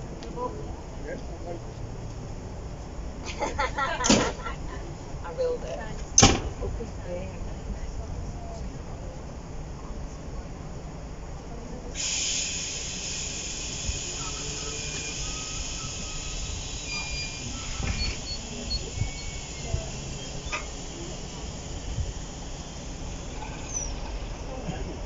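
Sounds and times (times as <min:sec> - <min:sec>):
loud hiss of escaping air: 0:12.0 - 0:24.6
low rumble: 0:15.3 - 0:25.0.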